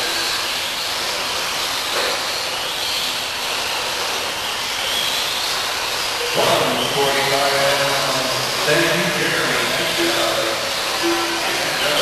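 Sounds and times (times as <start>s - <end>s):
high motor whine: 0.0s - 12.0s
toy truck motors hissing: 0.0s - 12.0s.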